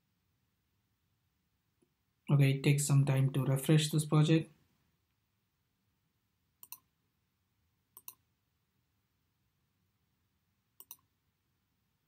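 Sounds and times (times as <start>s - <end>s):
computer mouse clicks: 6.6s - 6.9s, 8.0s - 8.3s, 10.8s - 11.1s.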